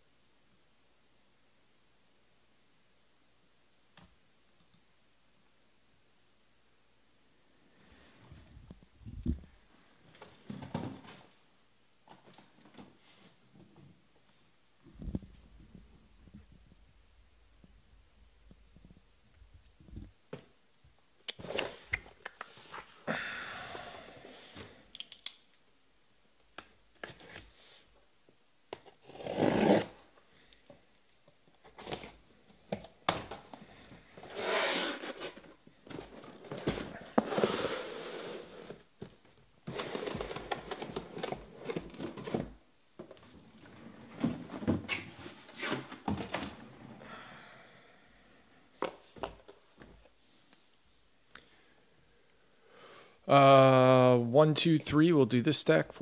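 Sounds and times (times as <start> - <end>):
boxes clicking and knocking: 39.6 - 46.6.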